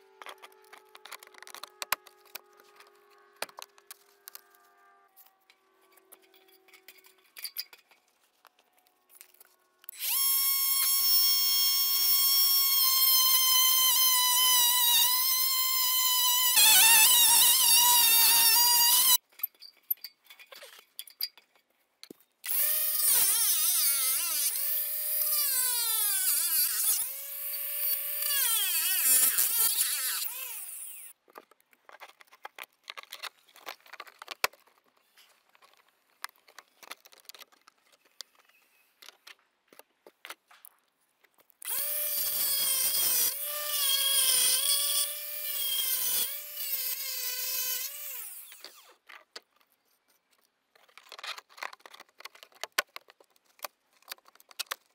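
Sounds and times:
clicks and knocks of handled pieces: 0.2 - 4.6, 19.2 - 22.4, 31.2 - 41.7, 48.6 - 54.9
angle grinder grinding tiles: 9.2 - 19.2, 22.5 - 31.1.

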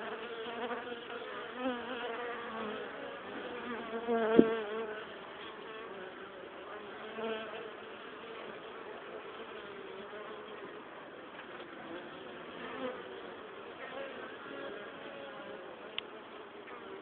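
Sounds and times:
single bee flying past: 0.0 - 8.7.

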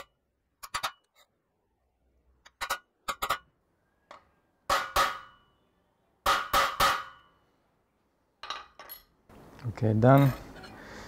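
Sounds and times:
hammer striking metal punch: 4.7 - 5.6, 6.2 - 7.4.

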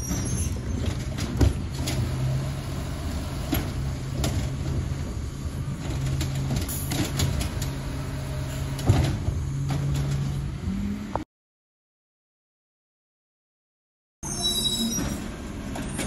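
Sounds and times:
clanks of cart and arm: 0.0 - 2.2, 8.5 - 10.4
truck engine and hydraulics drone: 0.0 - 11.2, 14.2 - 16.0.

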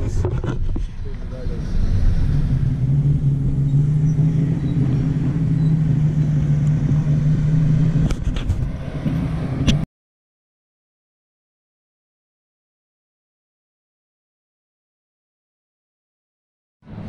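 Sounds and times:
engine running with low hum: 0.0 - 9.8.

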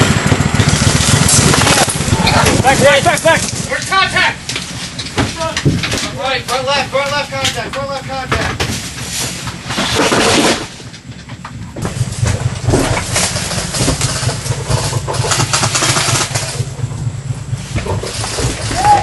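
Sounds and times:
loud rushing noise: 0.0 - 4.5
utility vehicle engine running: 0.0 - 19.0.

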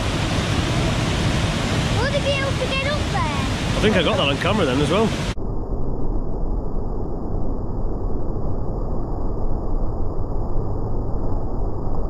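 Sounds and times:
muffled waterfall rushing: 0.0 - 5.4.

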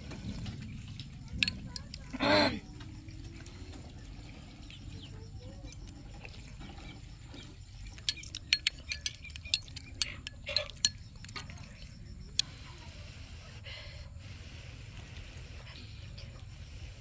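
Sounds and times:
spoon clinking on ceramic bowl: 8.0 - 11.6.

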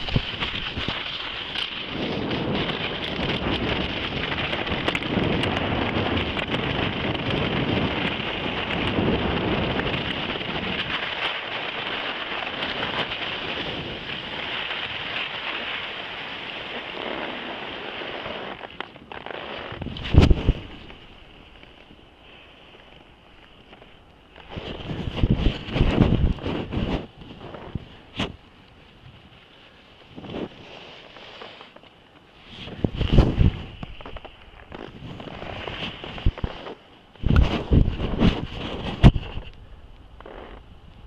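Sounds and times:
wind buffeting microphone: 0.0 - 15.3, 16.7 - 21.4, 24.4 - 28.4, 32.5 - 41.0
skis scraping on snow: 0.0 - 39.5, 40.2 - 40.7.

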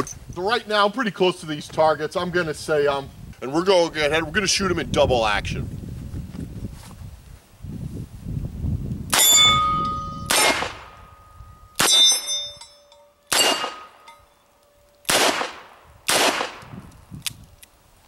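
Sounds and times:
steel target plates ringing: 9.2 - 15.1.

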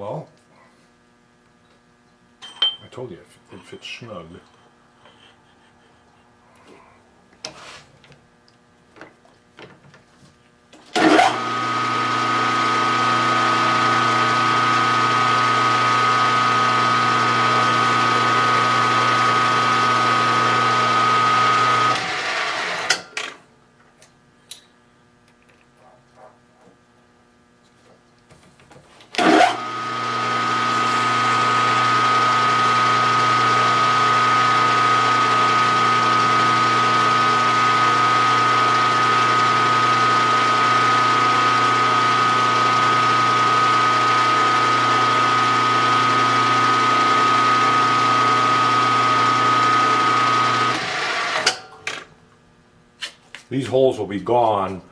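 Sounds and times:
milling machine motor humming: 11.0 - 22.9, 29.2 - 51.5.

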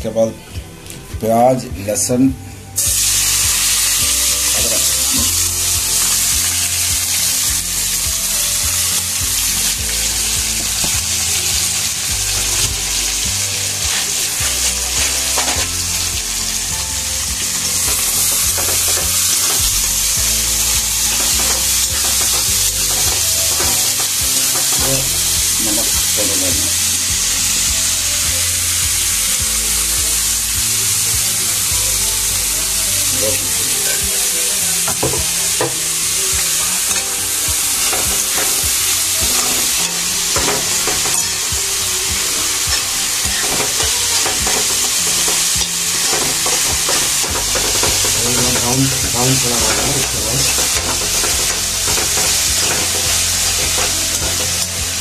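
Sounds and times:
onions sizzling in oil: 2.8 - 55.0
spatula scraping a pan: 42.8 - 54.7.

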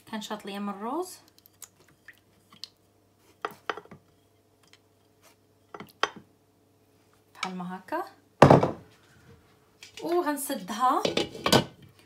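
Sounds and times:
spatula scraping and tapping pot: 10.6 - 11.7.

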